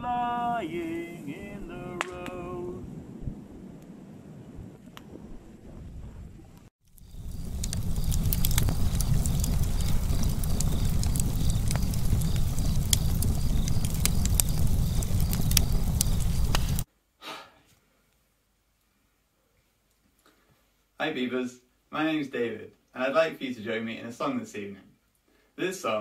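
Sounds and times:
burning wood crackling and popping: 0:06.8 - 0:16.9
fire low rush: 0:06.9 - 0:16.9.

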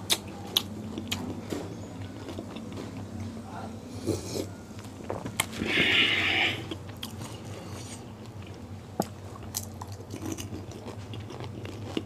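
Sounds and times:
crisp food crunching in mouth: 0:09.0 - 0:12.0.

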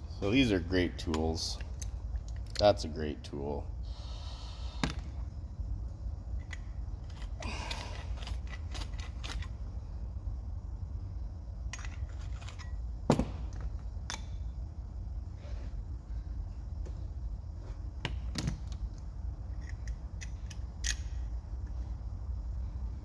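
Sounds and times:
steady low hum: 0:00.0 - 0:23.0
clicks and knocks of tools: 0:18.0 - 0:21.1.

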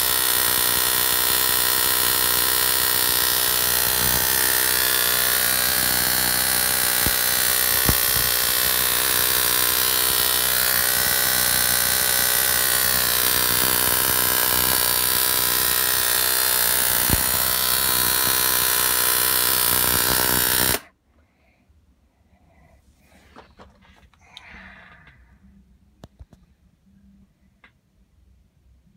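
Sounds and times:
high-voltage arc buzzing: 0:00.0 - 0:20.9
electric arc snaps: 0:13.2 - 0:16.0, 0:16.6 - 0:18.7.

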